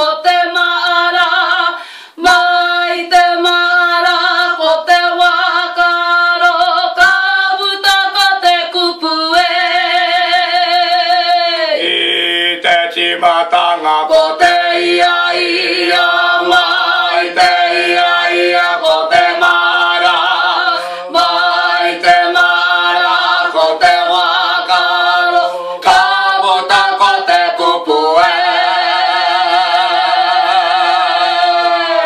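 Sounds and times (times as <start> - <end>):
group singing unaccompanied: 0.0 - 32.0
singers breathing: 1.8 - 2.2, 20.7 - 21.2, 25.4 - 25.8.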